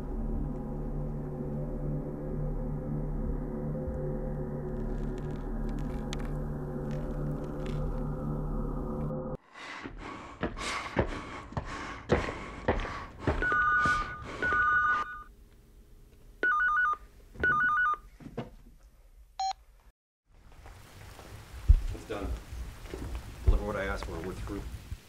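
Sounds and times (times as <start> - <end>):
phone ringing electronic warble: 13.5 - 15.3, 16.4 - 18.0.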